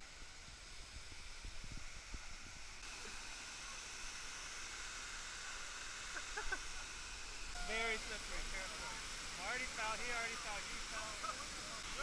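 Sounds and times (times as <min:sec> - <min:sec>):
water pouring over waterfall: 0:07.7 - 0:12.0.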